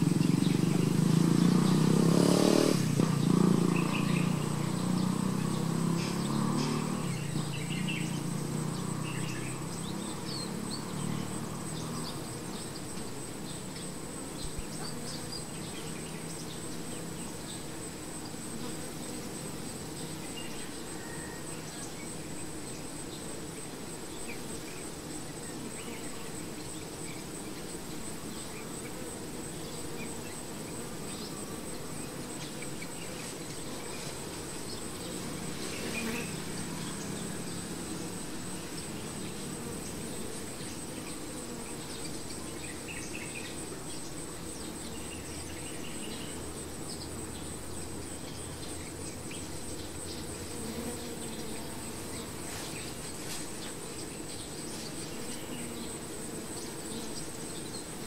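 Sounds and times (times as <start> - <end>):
honey bees humming: 0.0 - 58.0.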